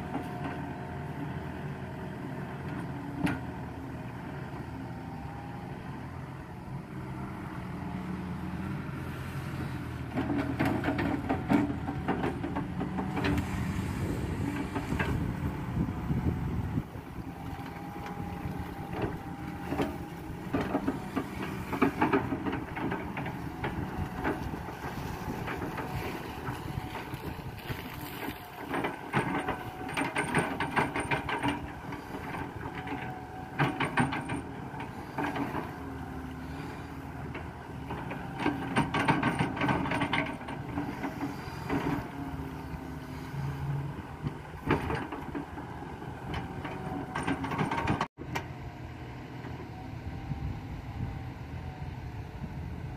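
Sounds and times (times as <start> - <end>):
excavator diesel engine running: 0.0 - 52.9
excavator bucket clanking: 10.0 - 48.5.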